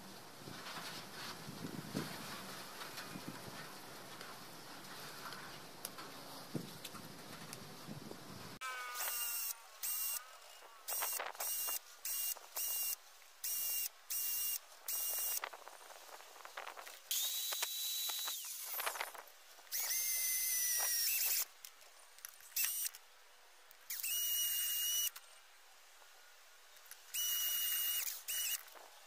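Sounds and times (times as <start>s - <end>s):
cordless drill whining: 8.9s - 10.3s, 10.9s - 15.4s, 17.1s - 18.9s, 19.7s - 21.5s, 22.6s - 23.0s, 23.9s - 25.2s, 27.1s - 28.7s.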